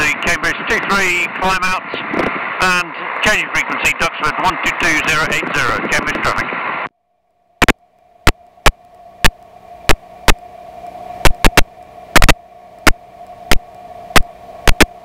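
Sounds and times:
faint electrical hum: 0:06.8 - 0:15.0
sharp crackles and pops: 0:07.6 - 0:10.5, 0:11.2 - 0:15.0.

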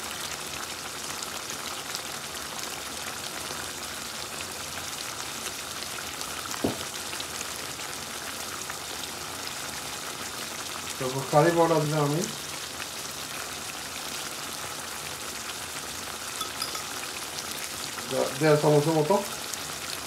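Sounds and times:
curry sizzling in a wok: 0:00.0 - 0:20.0
short knock: 0:06.6 - 0:06.9.

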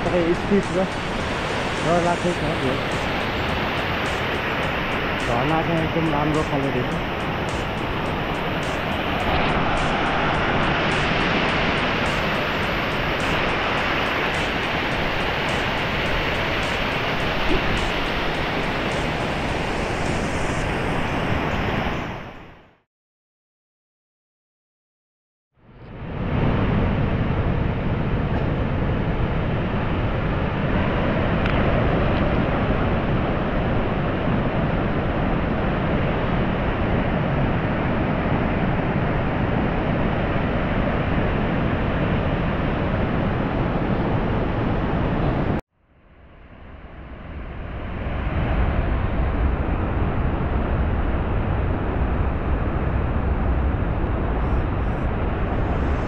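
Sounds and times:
waterfall roaring: 0:00.0 - 0:21.8
steady rushing noise: 0:00.0 - 0:22.7, 0:25.7 - 0:56.0.

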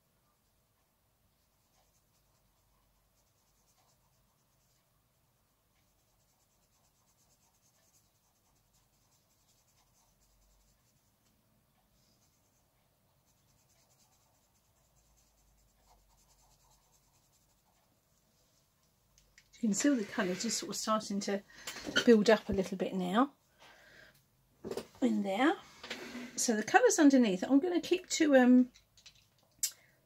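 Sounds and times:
pencil scratching on paper: 0:01.4 - 0:11.2, 0:12.0 - 0:18.0, 0:19.7 - 0:20.8.

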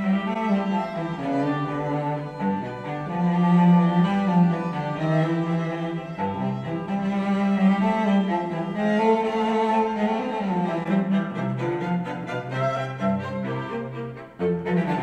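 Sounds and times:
classical string music: 0:00.0 - 0:15.0.

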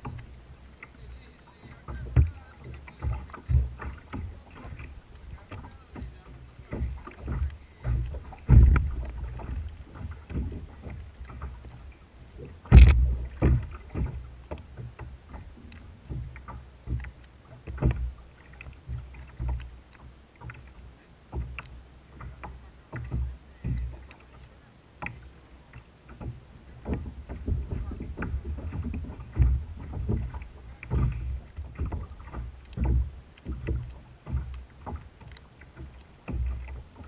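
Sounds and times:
waves slapping kayak hull: 0:00.0 - 0:37.0
sharp knock on hull: 0:01.6 - 0:11.6, 0:12.4 - 0:15.4, 0:26.2 - 0:35.0.

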